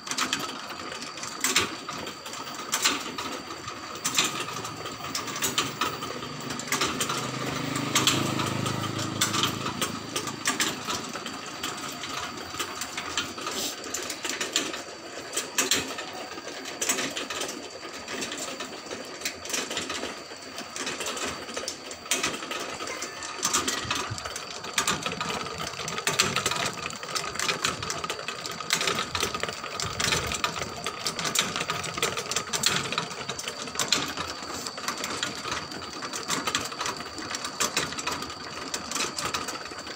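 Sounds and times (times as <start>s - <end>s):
motor whine: 4.5s - 13.0s.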